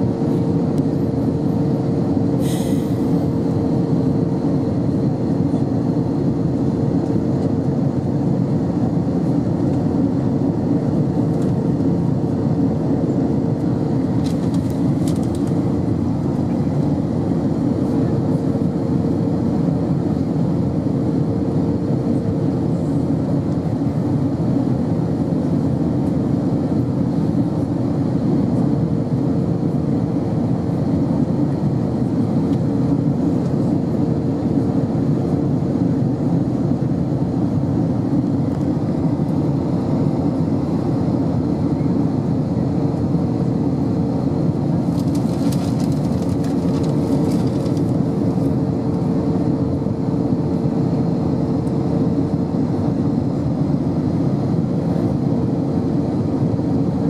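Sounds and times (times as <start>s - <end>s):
aircraft cabin engine and airflow noise: 0.0s - 57.0s
constant hum: 0.0s - 57.0s.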